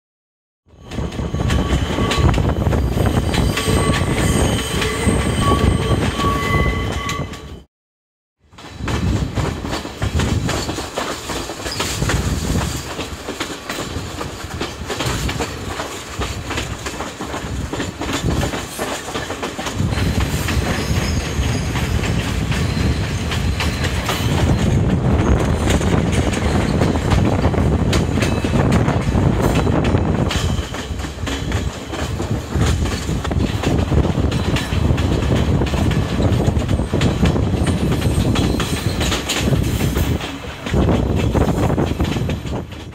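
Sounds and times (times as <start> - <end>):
low train rumble: 0.7 - 7.7, 8.5 - 42.9
train wheels clattering: 8.6 - 42.9.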